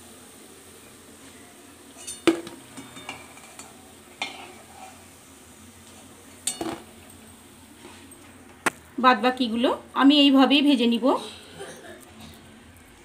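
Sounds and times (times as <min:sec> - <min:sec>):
oil sizzling: 0:00.0 - 0:13.0
metal spatula scraping steel pan: 0:02.8 - 0:05.0.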